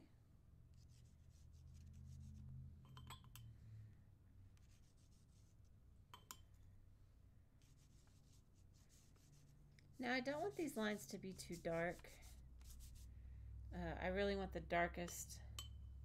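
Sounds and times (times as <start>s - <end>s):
pencil scratching on paper: 0.7s - 2.6s, 4.6s - 5.6s, 7.6s - 13.1s
pencil clinking on glass jar: 2.8s - 3.5s, 6.1s - 6.5s.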